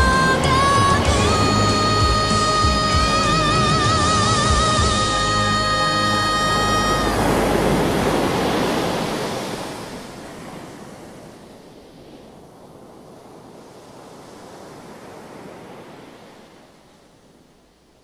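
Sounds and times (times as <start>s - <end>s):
surf washing over pebbles: 6.4s - 12.9s.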